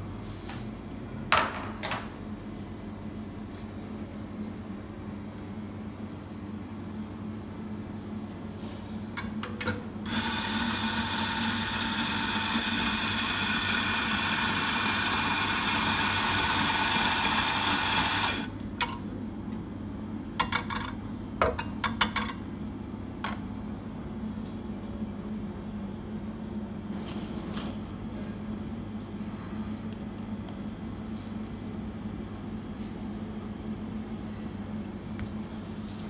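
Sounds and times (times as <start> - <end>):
espresso grinder whining: 10.1 - 18.5.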